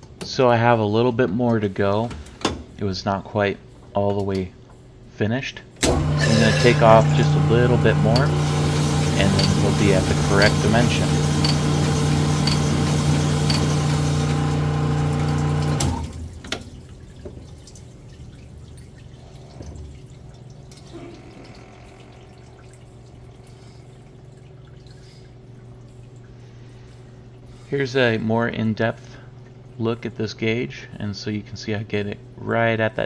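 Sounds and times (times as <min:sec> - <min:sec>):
honing machine running: 0:05.9 - 0:16.0
oil trickling and dripping: 0:06.0 - 0:28.1, 0:29.1 - 0:30.0.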